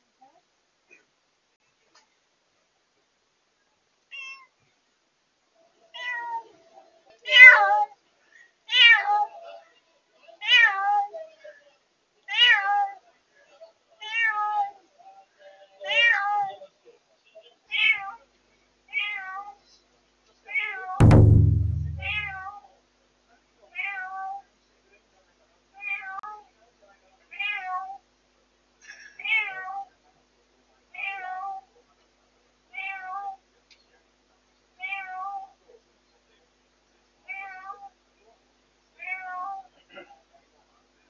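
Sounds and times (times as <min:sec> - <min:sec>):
cat meowing: 0:04.1 - 0:04.5, 0:05.9 - 0:06.4, 0:18.9 - 0:19.5
loud thump: 0:21.0 - 0:22.4.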